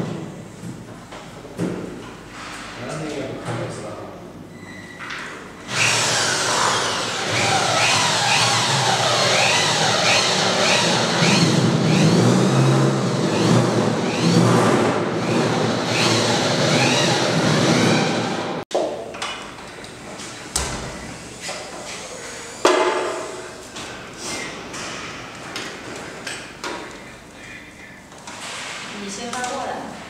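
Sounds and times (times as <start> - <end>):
power drill whining: 5.7 - 18.6.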